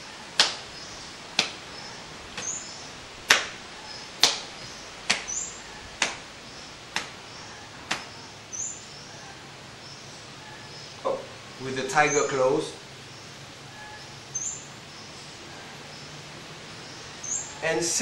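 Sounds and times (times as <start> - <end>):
small birds chirping: 0.0 - 18.0
sharp slaps: 0.4 - 0.7, 1.3 - 1.6, 3.2 - 3.6, 4.2 - 5.4, 6.0 - 6.3, 6.9 - 7.2, 7.9 - 8.1.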